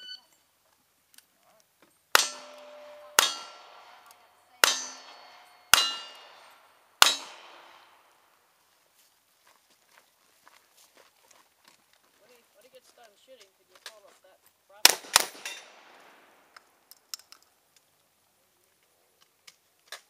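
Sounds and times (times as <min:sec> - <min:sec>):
steel target ringing: 0:02.1 - 0:08.2
revolver shots: 0:02.2 - 0:08.0.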